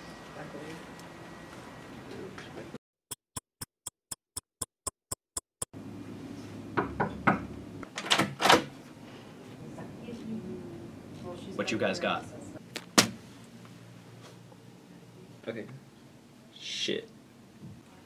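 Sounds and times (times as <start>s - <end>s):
sharp even ticking: 3.1s - 5.7s.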